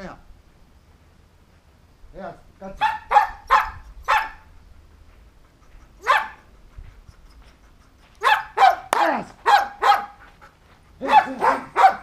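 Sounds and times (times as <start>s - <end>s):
dog barking: 2.8s - 4.5s, 6.0s - 6.5s, 8.2s - 10.2s, 11.0s - 12.0s.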